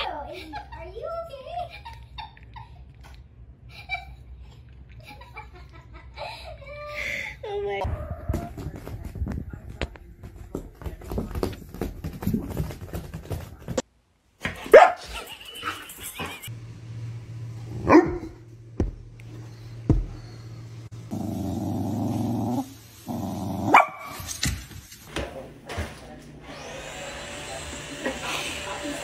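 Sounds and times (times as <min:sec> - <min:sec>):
dog barking: 0:14.6 - 0:15.2, 0:17.8 - 0:18.4, 0:23.7 - 0:24.3
dog growling: 0:21.1 - 0:23.8.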